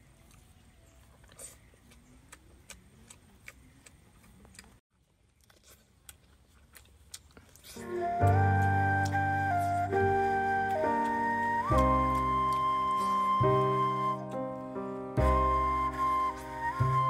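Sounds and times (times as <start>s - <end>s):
chewing smacks: 0.0s - 9.8s, 10.6s - 13.4s.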